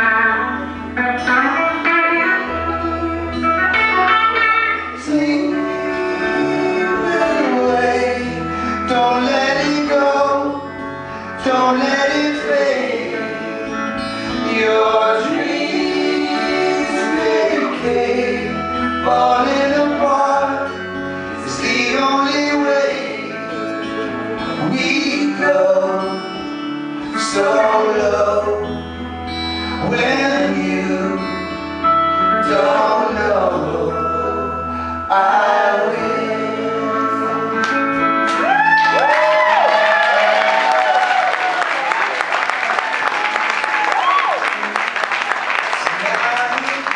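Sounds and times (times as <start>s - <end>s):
low bass notes: 0.0s - 39.6s
keyboard: 0.0s - 43.8s
acoustic and electric guitars: 0.0s - 46.9s
men singing in harmony: 4.9s - 10.7s, 11.4s - 26.5s, 27.1s - 28.8s, 29.8s - 31.4s, 32.2s - 38.1s.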